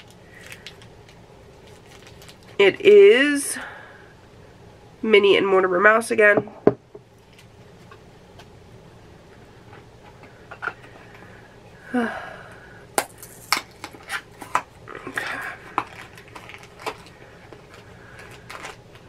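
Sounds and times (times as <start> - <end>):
packaging rustling: 0.0 - 2.6, 13.1 - 19.0.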